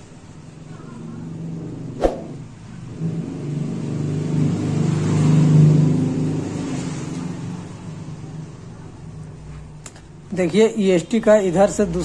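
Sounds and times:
vehicle engine passing by: 1.1 - 9.0.

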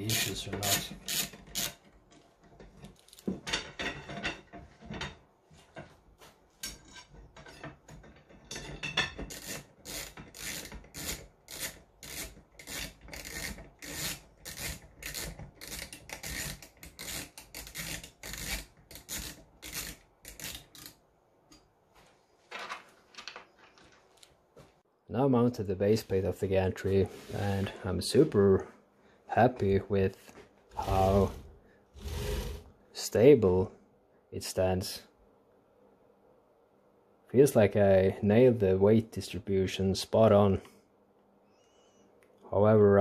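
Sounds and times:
screwdriver rasping turns: 0.0 - 1.9, 9.2 - 21.0
scraping and handling: 21.5 - 24.8, 30.7 - 32.8.

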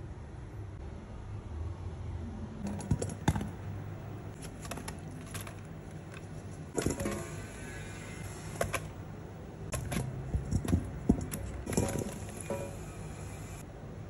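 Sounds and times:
vegetables knocking into metal pot: 2.6 - 3.7, 9.7 - 12.9.

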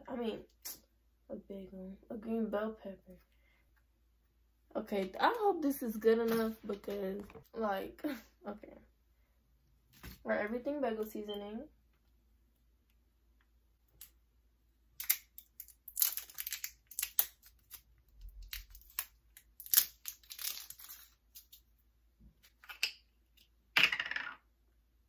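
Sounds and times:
plastic seal crinkling and tearing: 15.0 - 21.6.

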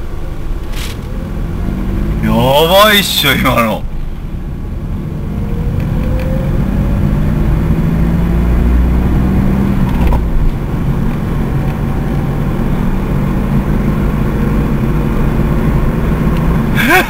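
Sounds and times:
car engine and road rumble: 0.0 - 17.0
faint rising whine: 1.0 - 9.0.

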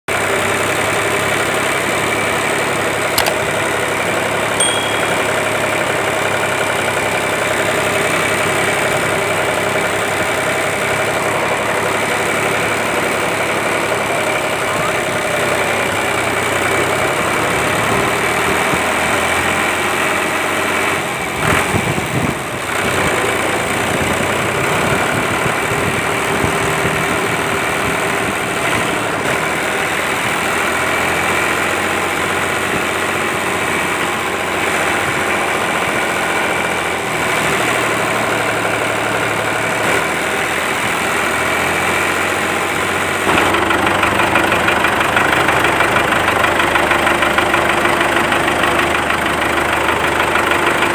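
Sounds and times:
toy tractor motor rattling: 43.3 - 50.9
toy tractor motor running: 43.3 - 50.9.

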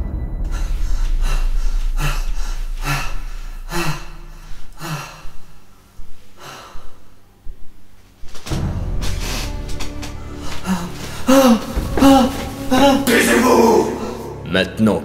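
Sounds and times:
low rumble: 0.0 - 5.7
man gasping for breath: 0.5 - 5.8.

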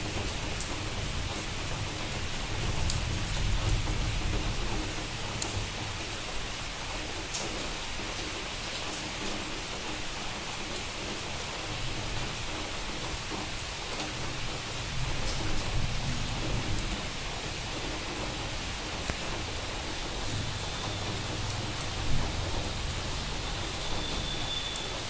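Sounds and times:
heavy rain pouring: 0.0 - 25.0.

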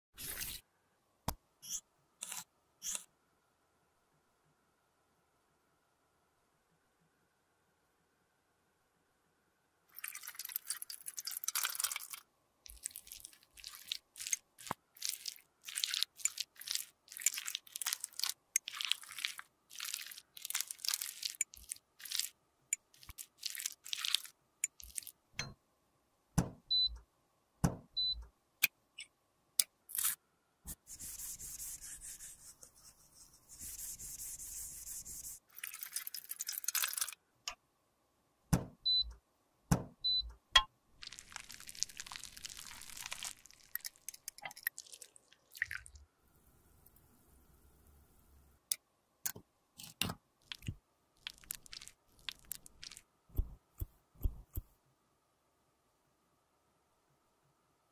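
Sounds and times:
spatula scraping cosmetic product: 12.7 - 22.3, 29.9 - 36.6.

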